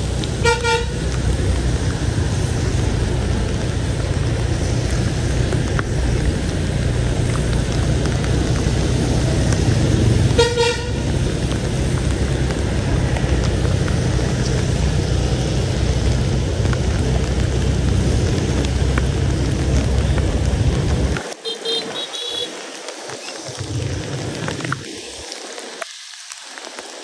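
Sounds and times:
street traffic rumble: 0.0 - 25.8
vehicle horn toot: 0.4 - 1.0, 10.4 - 11.0, 21.4 - 22.6.

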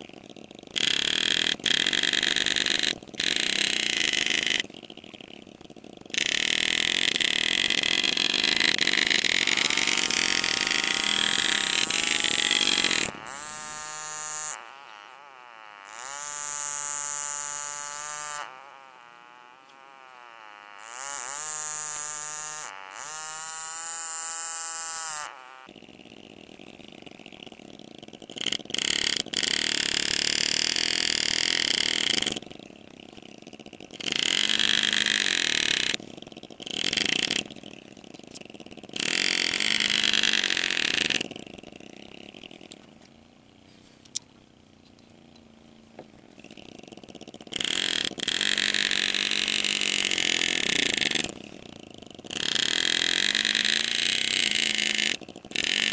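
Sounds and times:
pneumatic engraving tool buzzing: 0.8 - 4.7, 6.1 - 25.7, 34.0 - 36.0, 47.6 - 51.4, 52.3 - 55.9.

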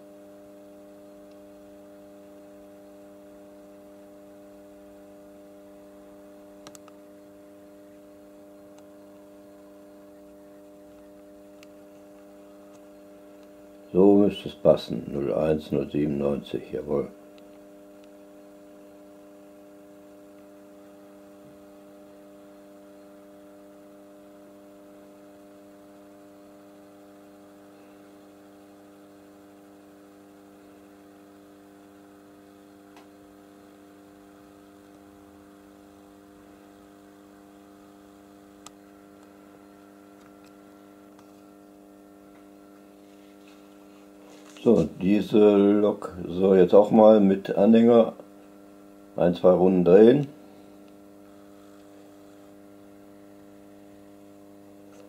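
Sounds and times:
electrical mains hum: 0.0 - 55.0
faint clicks: 6.6 - 7.0.

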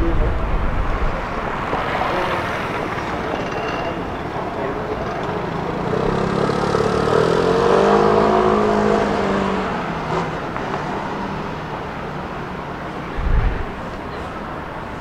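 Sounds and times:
vehicle passing by: 5.5 - 11.6.

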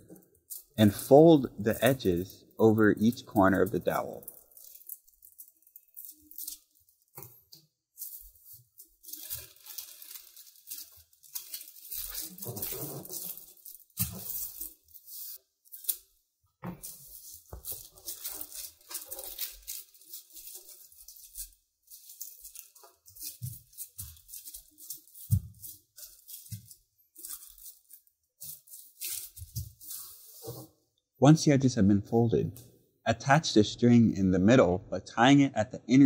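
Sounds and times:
tissue paper rustling and crinkling: 0.5 - 7.2, 8.0 - 16.0, 16.8 - 30.8.

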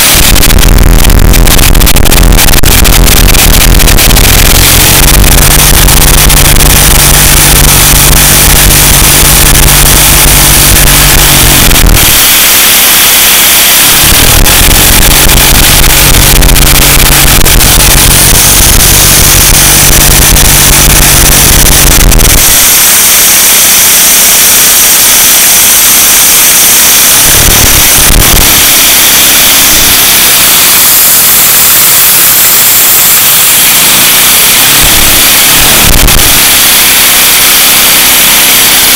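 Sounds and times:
low hum: 0.0 - 28.9.

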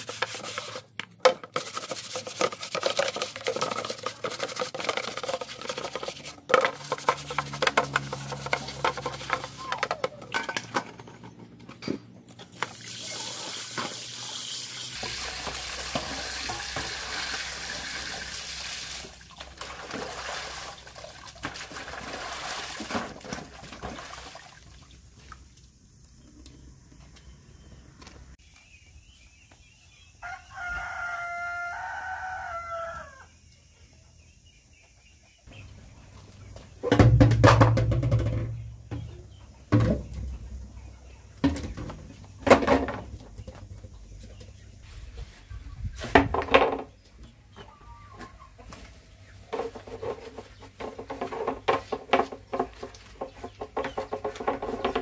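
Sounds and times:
sponge scrubbing plastic: 0.0 - 9.7
water splashing in metal basin: 12.5 - 25.4
rooster crowing: 30.2 - 33.3.

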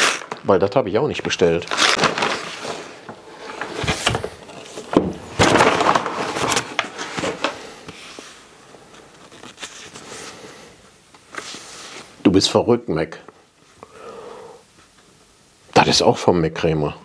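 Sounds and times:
paper bag rustling and crinkling: 0.0 - 10.5.

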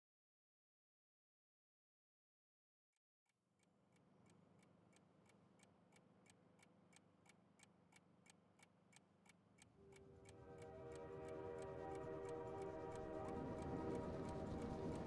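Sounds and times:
clock-like ticking: 3.6 - 15.0
sustained musical tones: 9.8 - 15.0.

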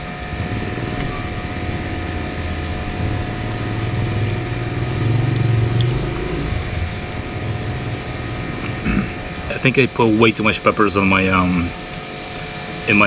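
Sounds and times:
motor engine droning: 0.0 - 12.6.

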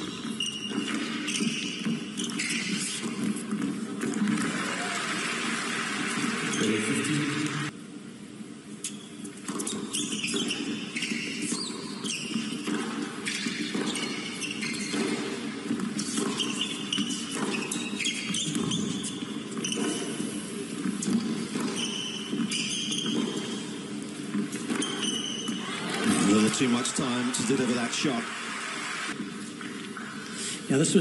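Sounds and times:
shoes squeaking on court: 0.0 - 5.4, 6.2 - 7.1, 8.7 - 28.2
racket striking tennis ball: 11.3 - 23.7.

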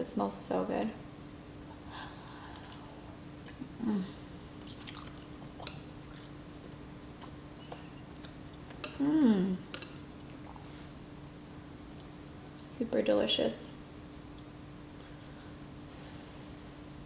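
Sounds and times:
person humming mmm: 3.7 - 4.3, 8.8 - 9.7
close-up chewing: 4.6 - 6.3.

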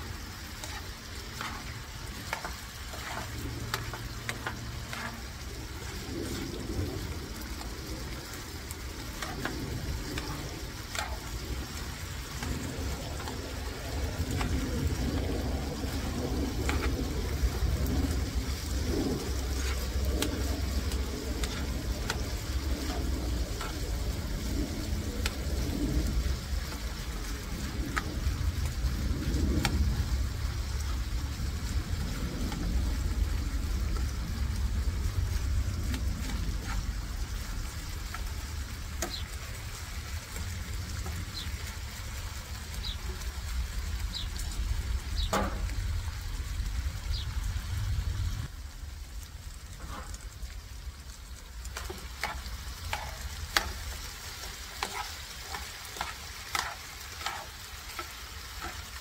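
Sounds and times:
low rumble: 0.0 - 59.0
meat sizzling in a frying pan: 0.0 - 59.0
metal tongs scraping a pan: 0.4 - 6.4, 9.0 - 13.4, 18.7 - 24.2, 51.8 - 59.0.

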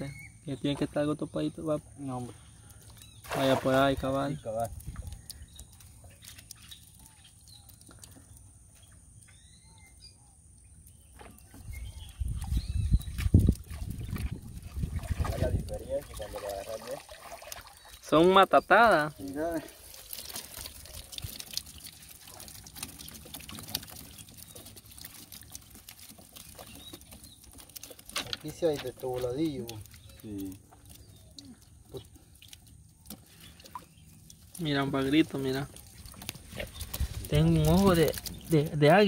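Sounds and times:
water trickling and dripping: 0.0 - 39.0
small clicks and patters: 4.0 - 9.4, 19.1 - 39.0
faint bird chirps: 4.2 - 14.3.

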